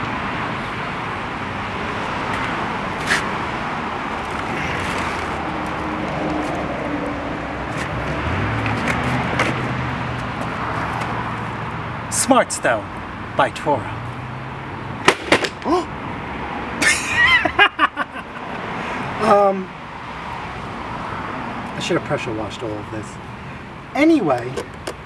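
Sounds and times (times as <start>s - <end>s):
road traffic: 0.0s - 25.0s.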